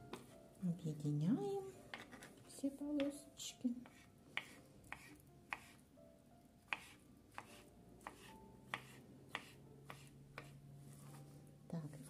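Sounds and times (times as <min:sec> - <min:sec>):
knife chopping on wooden board: 0:03.8 - 0:05.8, 0:06.7 - 0:10.6.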